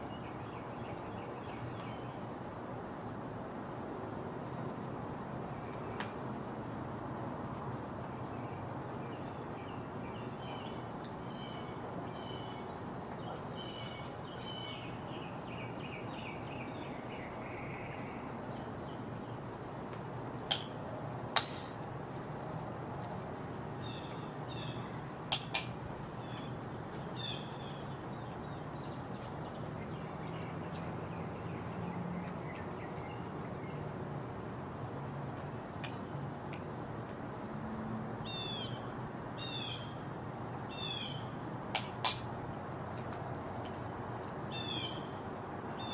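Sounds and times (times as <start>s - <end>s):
low background noise: 0.0s - 45.9s
birds high whistled calls: 9.1s - 18.2s, 44.5s - 45.1s.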